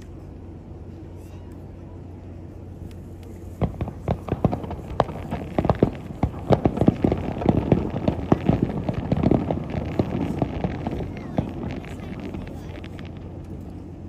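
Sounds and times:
fireworks bangs and crackling: 3.2 - 14.0.

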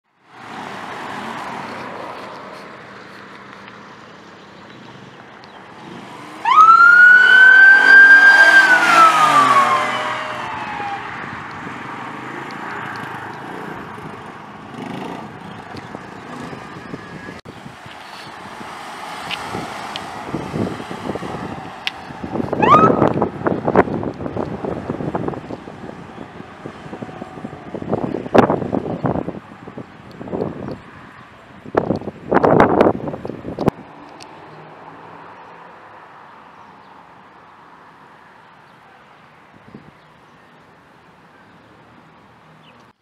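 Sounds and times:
cars passing: 0.2 - 43.0
police siren wail: 6.4 - 11.3, 22.5 - 23.3.

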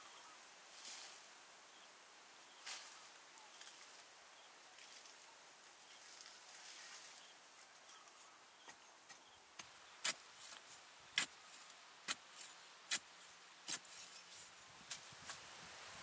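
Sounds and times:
digging bar striking earth: 11.2 - 14.0.

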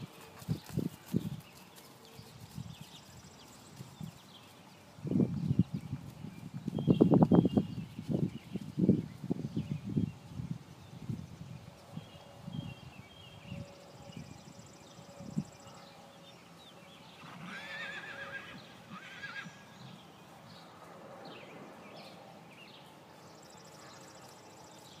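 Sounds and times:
horse whinnying: 17.2 - 19.7.

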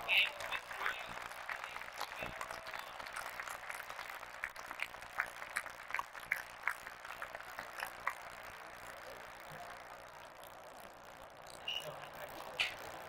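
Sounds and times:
crowd murmur: 0.0 - 4.4
people clapping: 0.0 - 13.0.

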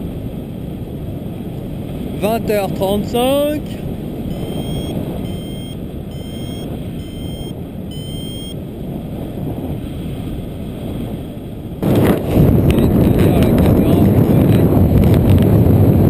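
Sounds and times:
wind on microphone: 0.0 - 16.0
variometer beeping: 4.3 - 8.6.

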